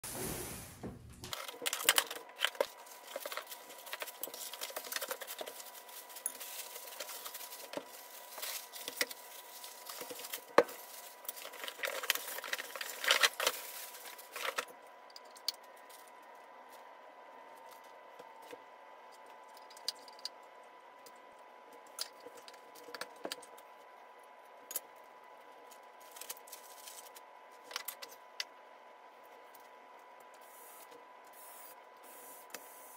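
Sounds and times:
packaging rustling and tearing: 1.2 - 14.7, 26.0 - 28.1.

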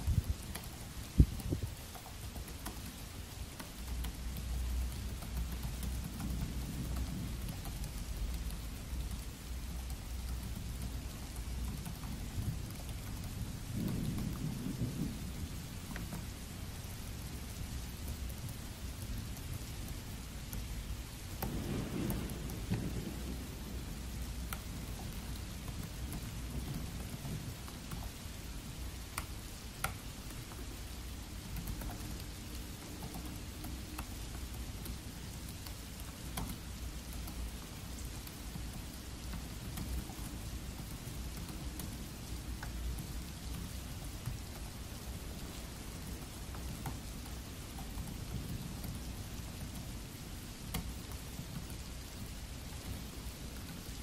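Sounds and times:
laptop keys typing: 0.0 - 14.6, 15.3 - 49.9, 50.7 - 53.0
steady rain: 0.0 - 54.0
low rumbling thunder: 6.0 - 9.2, 13.4 - 16.7, 21.4 - 27.9.

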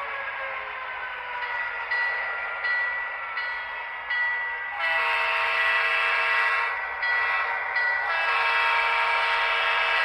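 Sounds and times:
model train diesel horn: 4.7 - 10.0.

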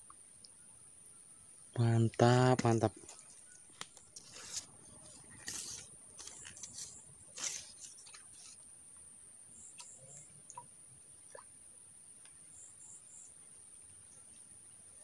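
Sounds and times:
soft rustles and scuffs: 3.0 - 8.6.

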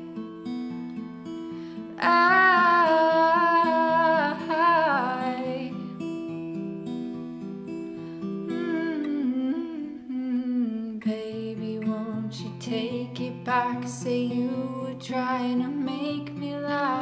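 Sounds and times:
plucked acoustic guitar: 0.0 - 17.0
woman humming: 8.5 - 11.0.

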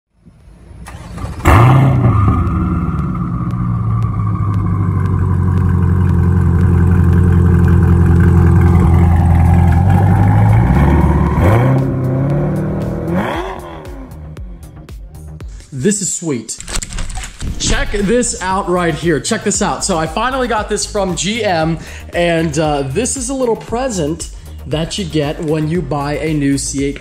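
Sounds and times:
car engine starting and idling: 0.2 - 14.9, 16.6 - 25.0.

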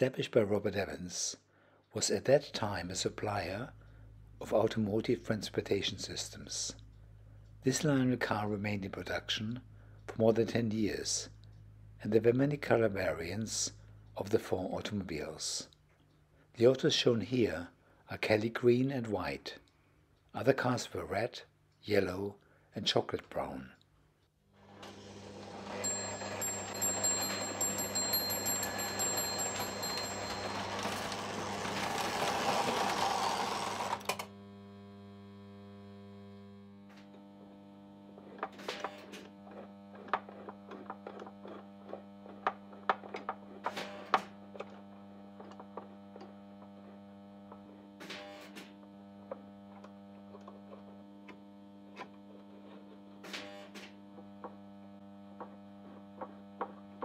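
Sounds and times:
electrical mains hum: 0.0 - 57.0
sharp clicks and knocks: 38.3 - 44.8.

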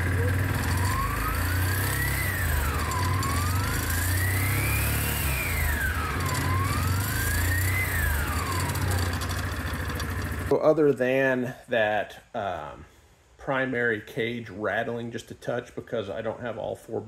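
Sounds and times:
atv engine revving: 0.0 - 10.5
slight rattle: 7.8 - 10.5.

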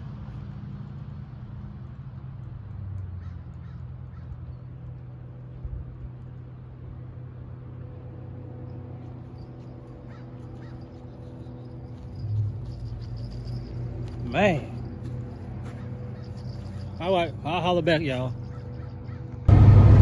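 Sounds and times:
low engine hum: 0.0 - 20.0
bird calls: 10.0 - 13.7, 15.6 - 17.1, 18.1 - 19.5.

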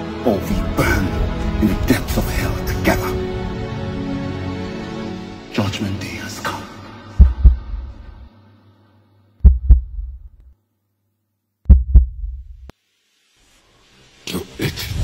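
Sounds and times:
heartbeat double thumps: 7.2 - 8.2, 9.4 - 10.4, 11.7 - 12.7.

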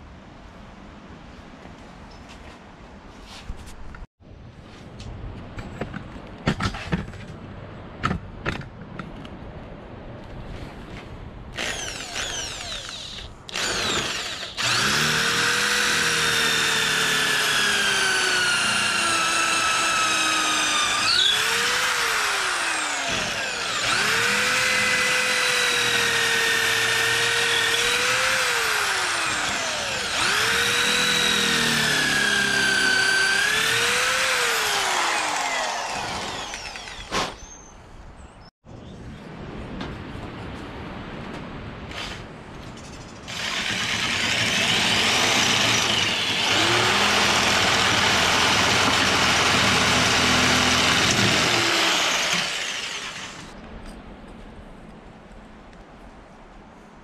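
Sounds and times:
electric drill boring: 11.6 - 37.1, 43.3 - 53.5.

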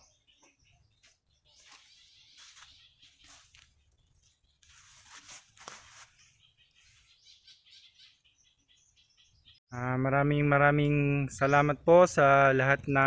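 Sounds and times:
faint bird chirps: 0.0 - 9.6.

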